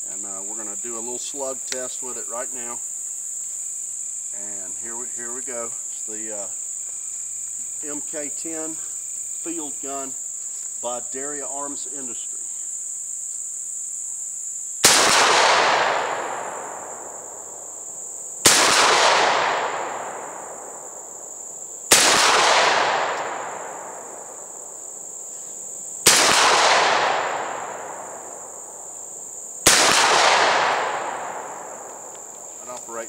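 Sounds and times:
crickets chirping: 0:00.0 - 0:33.0
shotgun shots with echo: 0:14.8 - 0:16.8, 0:18.4 - 0:20.6, 0:21.9 - 0:23.9, 0:26.0 - 0:28.0, 0:29.6 - 0:31.7.

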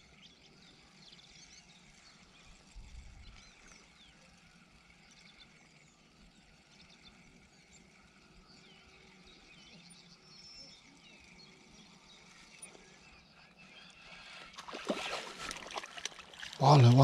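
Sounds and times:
faint birdsong chirps: 0:00.0 - 0:17.0.

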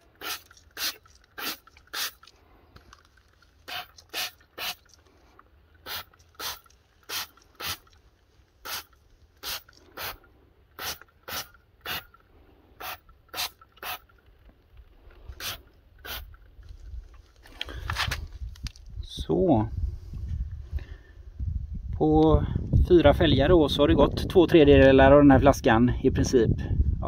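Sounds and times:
spray bottle spritzes: 0:00.0 - 0:02.3, 0:03.6 - 0:05.0, 0:05.8 - 0:08.0, 0:08.6 - 0:10.2, 0:10.8 - 0:12.1, 0:12.8 - 0:14.1, 0:15.4 - 0:16.3.

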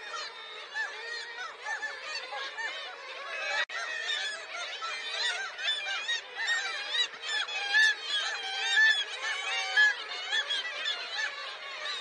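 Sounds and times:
seabird colony calling: 0:00.0 - 0:12.0.

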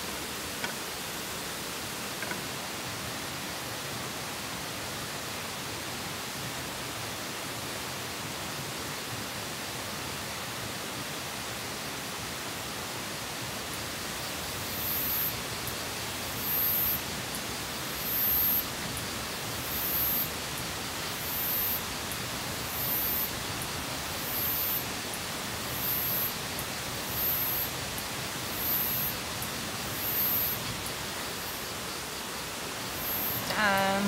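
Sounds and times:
rain falling: 0:11.1 - 0:34.0.

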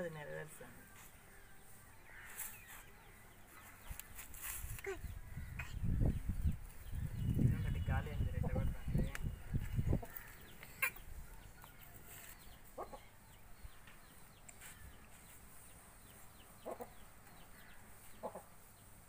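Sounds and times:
chickens clucking: 0:12.6 - 0:13.1, 0:16.6 - 0:17.1, 0:18.1 - 0:18.6.

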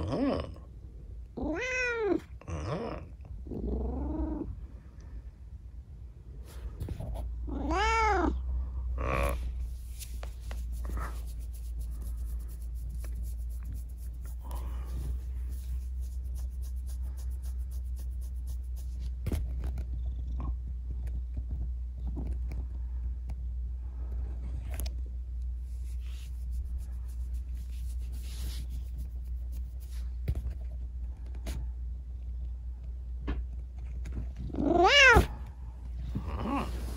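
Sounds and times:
cat purring: 0:00.0 - 0:05.2, 0:10.5 - 0:22.9, 0:33.8 - 0:36.9
cat meowing: 0:01.4 - 0:02.2, 0:07.5 - 0:08.4, 0:34.6 - 0:35.4
fur rustling under hand: 0:09.4 - 0:19.2.

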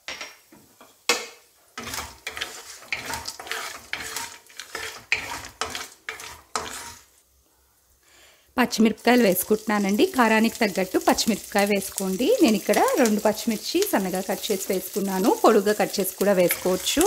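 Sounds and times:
oil sizzling: 0:00.2 - 0:07.3, 0:08.2 - 0:17.0
spatula scraping and rattling nuts: 0:01.8 - 0:07.1, 0:10.6 - 0:17.0.

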